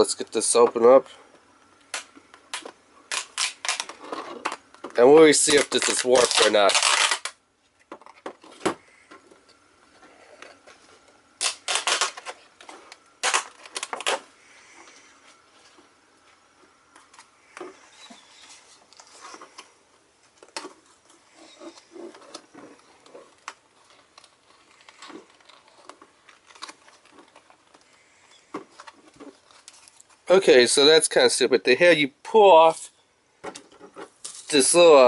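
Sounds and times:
plastic packaging crackling: 1.9s - 7.4s, 11.4s - 14.2s, 20.4s - 30.3s.

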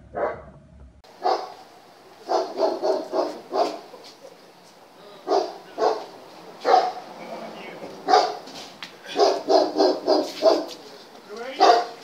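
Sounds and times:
dog barking: 0.1s - 0.5s, 1.1s - 4.5s, 5.2s - 7.1s, 8.0s - 8.5s, 9.1s - 10.9s, 11.5s - 12.0s.

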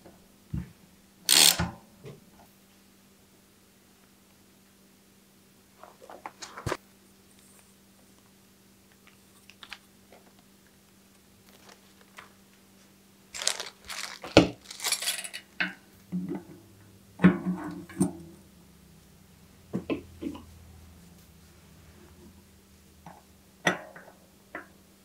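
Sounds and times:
bicycle cogs clinking: 1.3s - 1.5s, 13.4s - 15.4s.

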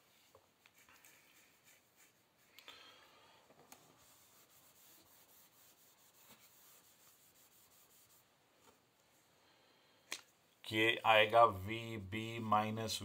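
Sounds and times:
whiteboard being wiped: 0.0s - 2.6s, 3.7s - 8.3s.

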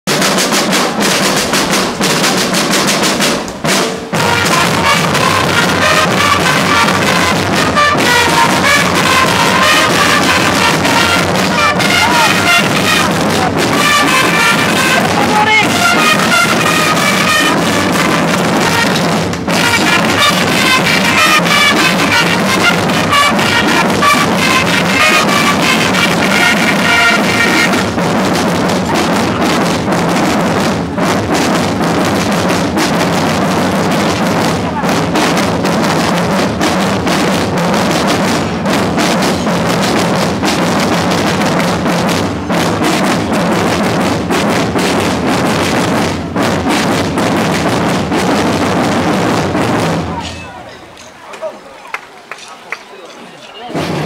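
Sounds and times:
marching drums rolling rhythm: 0.0s - 52.5s, 53.4s - 54.0s
high melody line: 3.6s - 30.0s.

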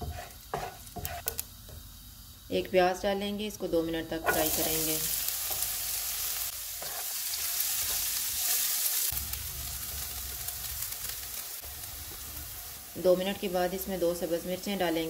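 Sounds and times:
spatula stirring in pan: 0.0s - 1.8s, 6.6s - 9.0s
onion sizzling in oil: 0.0s - 15.0s.

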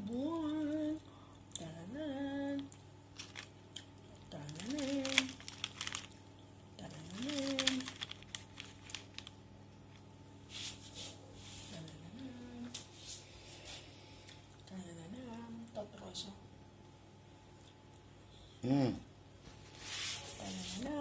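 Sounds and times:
baking paper crinkling: 3.2s - 3.6s, 4.3s - 11.0s
person humming: 18.6s - 19.0s.

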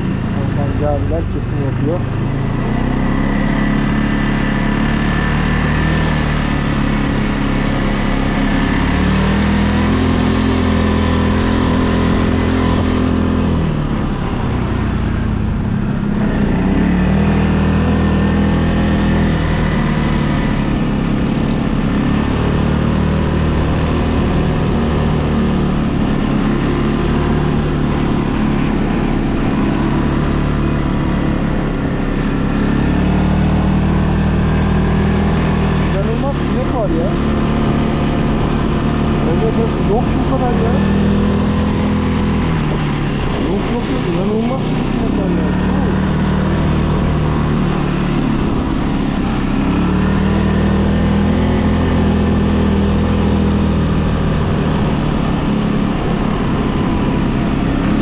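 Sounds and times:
atv engine running: 0.0s - 58.0s.

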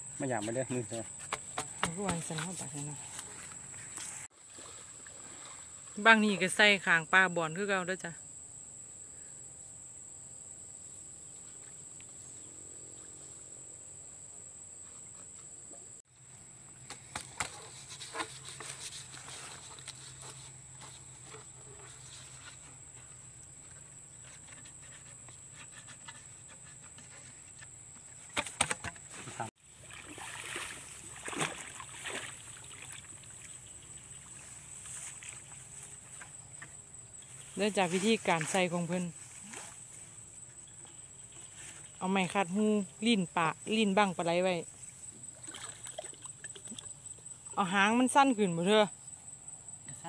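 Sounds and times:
insects trilling: 0.0s - 50.0s
rustling in grass: 16.7s - 26.4s, 29.1s - 36.4s, 37.2s - 40.2s.

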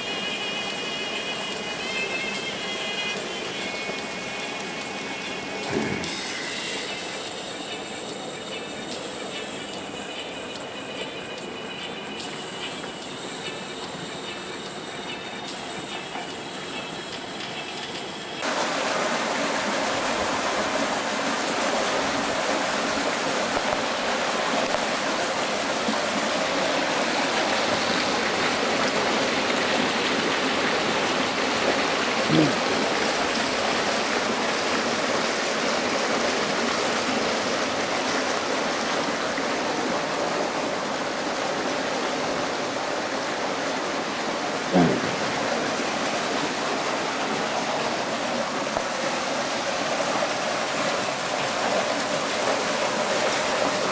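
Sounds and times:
fountain water pouring into trough: 18.4s - 53.9s.

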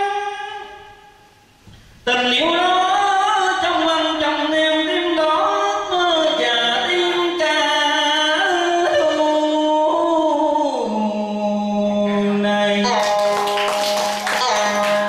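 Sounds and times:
man singing into a microphone: 0.0s - 1.1s, 2.0s - 13.3s.

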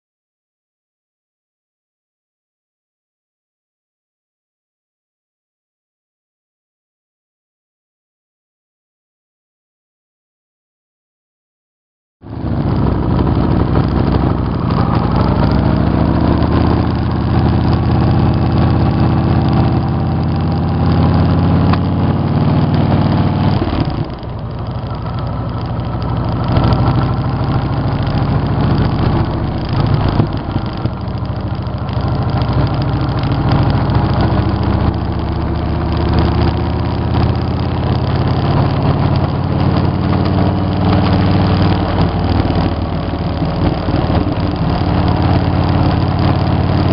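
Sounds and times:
motorcycle engine running: 12.2s - 46.9s.

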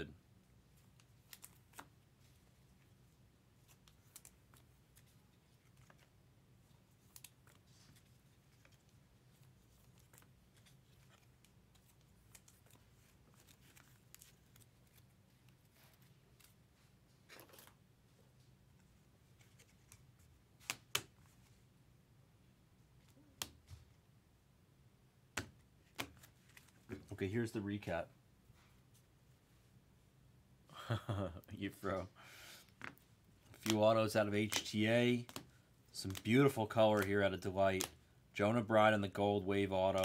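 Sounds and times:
trading cards rustling: 0.7s - 21.6s, 25.4s - 28.0s, 32.6s - 38.0s.

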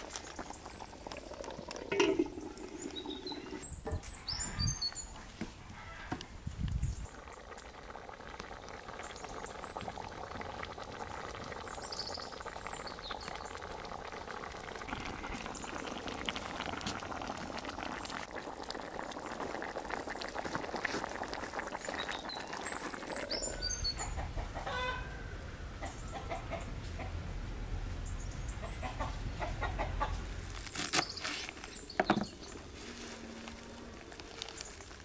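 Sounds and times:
stew bubbling and popping: 0.0s - 5.5s, 6.2s - 24.7s, 28.5s - 35.0s
bird chirps: 2.7s - 5.1s.

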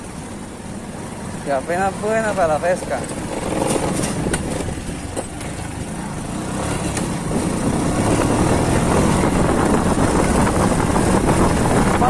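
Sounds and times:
small motorcycle running: 1.0s - 12.0s.

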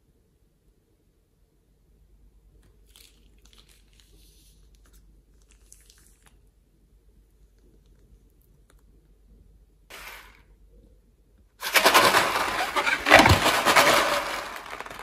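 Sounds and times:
plastic bag crinkling: 11.6s - 15.0s.

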